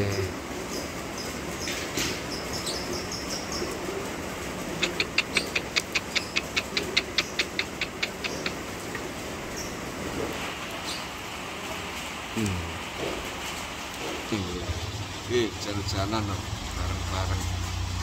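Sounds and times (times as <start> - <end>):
rain on flooded concrete: 0.0 - 18.0
lovebird chirping: 4.8 - 8.6.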